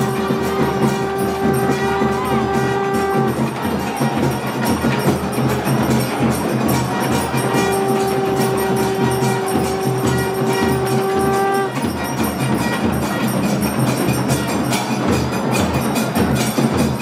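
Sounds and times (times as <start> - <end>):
long held note: 0.0 - 3.5, 7.0 - 11.9
drums beating steadily: 0.0 - 17.0
ringing bells: 0.0 - 17.0.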